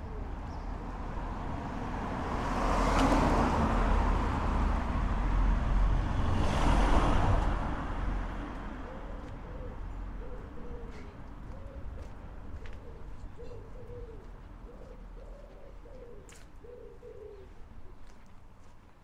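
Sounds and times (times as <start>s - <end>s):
car driving past: 1.8s - 8.8s.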